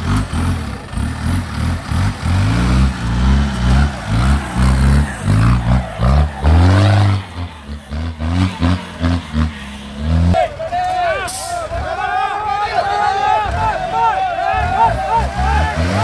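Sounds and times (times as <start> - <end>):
jeep engine revving hard: 0.0 - 10.4, 14.3 - 16.0.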